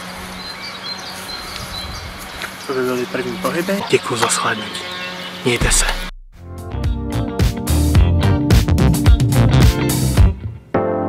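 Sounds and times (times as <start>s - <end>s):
electronic music with fast drum beat: 5.6s - 10.3s.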